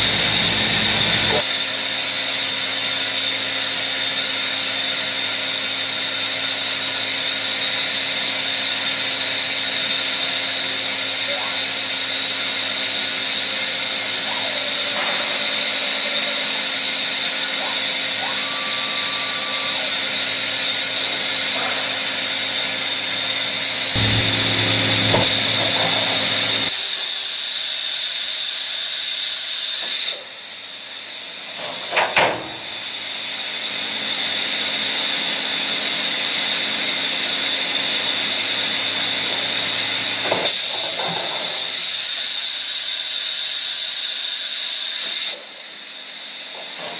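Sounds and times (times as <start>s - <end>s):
machining center humming and whining: 0.0s - 1.4s, 10.4s - 26.8s
tool changer mechanical clunks: 24.0s - 26.7s.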